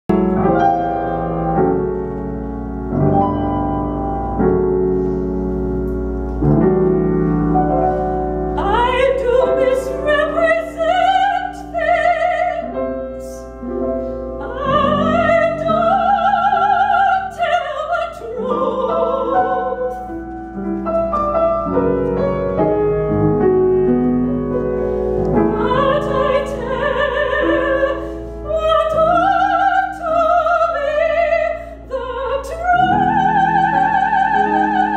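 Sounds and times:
grand piano chords: 0.1s - 34.9s
woman singing operatically: 8.6s - 13.4s, 14.4s - 20.0s, 25.5s - 34.9s.

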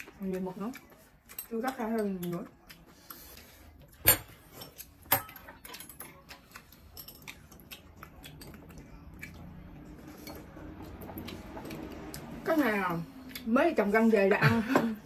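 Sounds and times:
utensils clinking on dishes: 3.3s - 11.9s.

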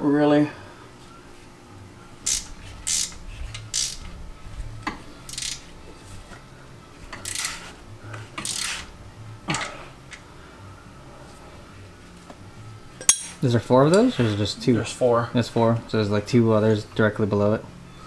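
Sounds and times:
hand tools clinking on steel: 13.0s - 14.1s.

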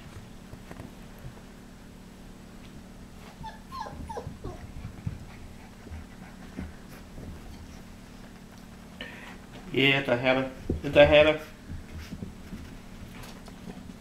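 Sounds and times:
puppy whimpering: 3.3s - 5.2s.

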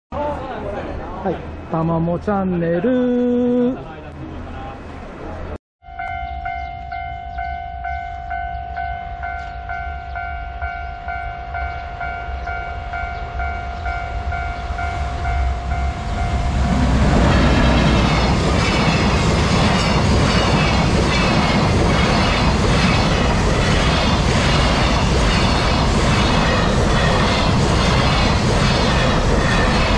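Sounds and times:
level-crossing warning bell: 5.8s - 19.1s
freight train rumble: 6.4s - 29.9s
train wheel clatter: 16.6s - 29.9s.

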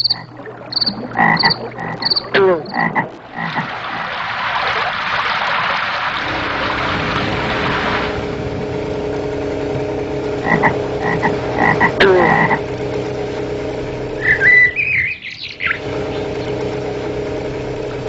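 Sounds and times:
high animal calls: 0.0s - 4.2s, 10.4s - 12.8s, 14.2s - 16.6s
motor hum: 0.0s - 18.0s.

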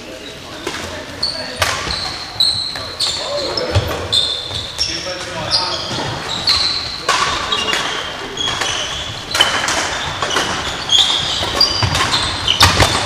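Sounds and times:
sports shoes squeaking on floor: 0.0s - 13.0s
racket striking shuttlecock: 7.0s - 13.0s.

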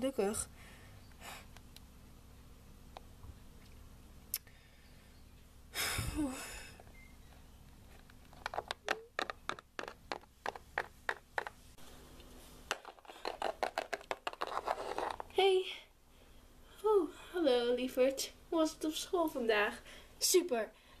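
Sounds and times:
plastic figure clicking on wood: 8.4s - 11.6s.

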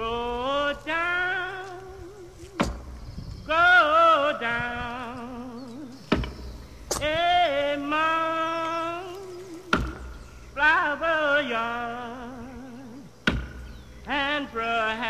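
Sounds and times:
person singing with vibrato: 0.0s - 13.2s, 13.9s - 15.0s
sharp knocks: 2.6s - 3.0s, 6.0s - 7.2s, 9.6s - 10.2s, 13.2s - 13.8s.

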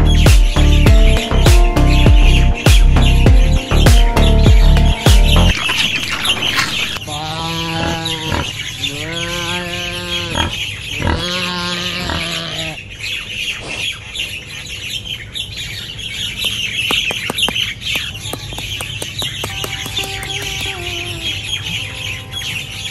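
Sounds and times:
birds chirping: 0.0s - 22.9s
drawn-out farm animal calls: 5.5s - 13.9s, 19.6s - 22.9s.

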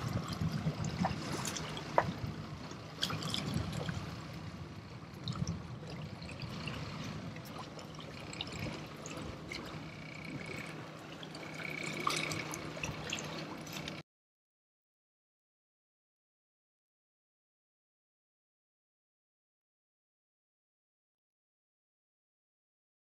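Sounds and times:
water splashing against boat hull: 0.0s - 14.0s.

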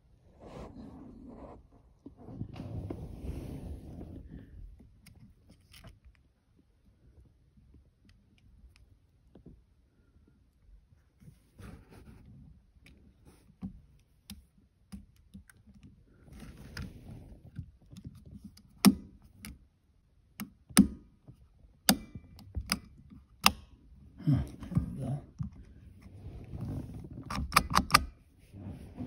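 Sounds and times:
sharp plastic snaps: 20.3s - 23.8s.

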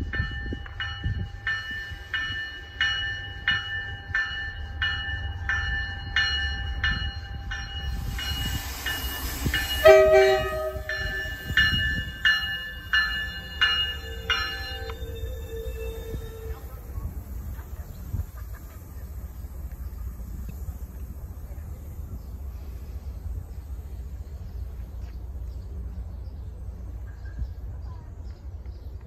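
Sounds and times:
warning bell ringing: 0.0s - 16.9s
train rumbling: 0.0s - 29.0s
train horn blast: 9.7s - 11.4s.

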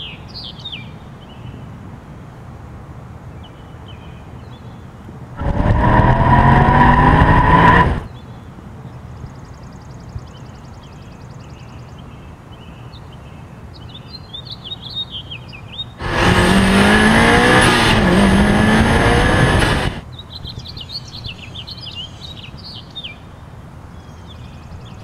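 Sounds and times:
sports car engine revving: 5.4s - 8.1s, 16.0s - 20.0s.

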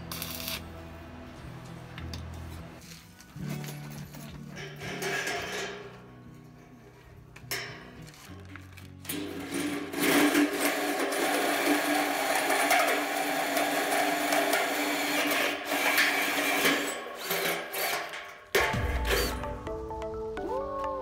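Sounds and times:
hole saw grinding into metal: 9.1s - 19.4s.

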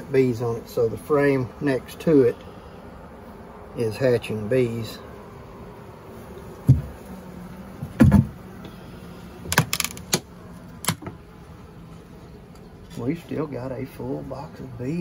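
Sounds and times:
honeybees humming: 0.0s - 15.0s
wooden hive frames knocking: 6.5s - 8.5s, 9.4s - 11.3s.

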